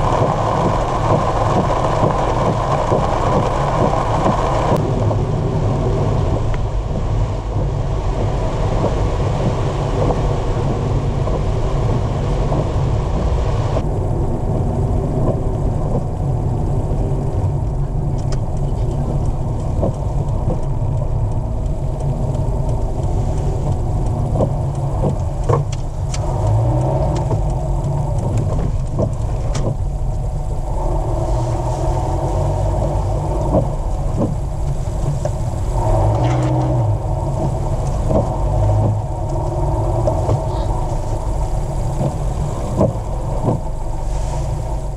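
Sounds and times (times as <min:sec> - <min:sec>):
car engine and tyres rumbling: 0:00.0 - 0:44.9
hiss: 0:40.5 - 0:44.9.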